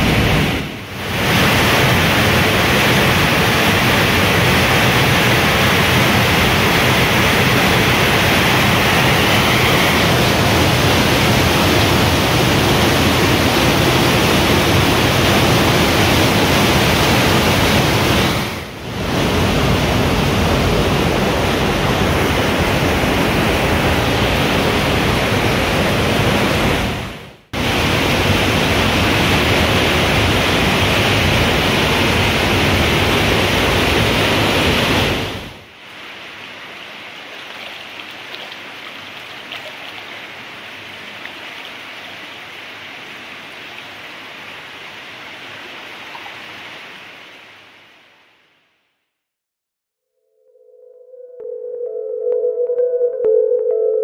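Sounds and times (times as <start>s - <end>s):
floodwater rushing through rock: 0.0s - 20.2s, 27.6s - 47.5s.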